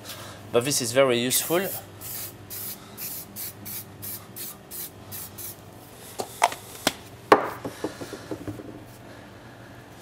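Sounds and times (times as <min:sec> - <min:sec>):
aerosol spray puffs: 0:02.0 - 0:05.6.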